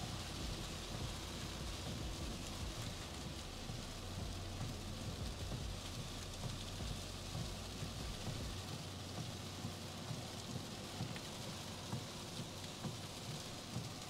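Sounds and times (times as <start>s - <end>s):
heavy rain on car roof: 0.0s - 14.0s.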